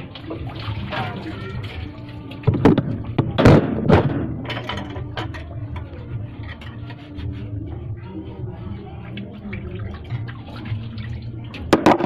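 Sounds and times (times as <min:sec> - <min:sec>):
loud thuds and knocks: 0:02.5 - 0:04.5.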